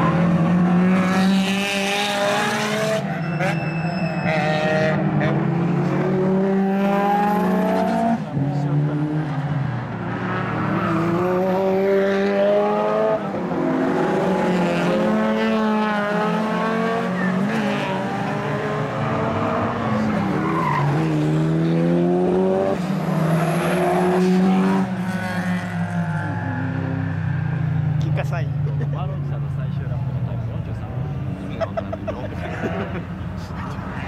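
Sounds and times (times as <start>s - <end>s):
race car engines accelerating: 0.0s - 34.0s.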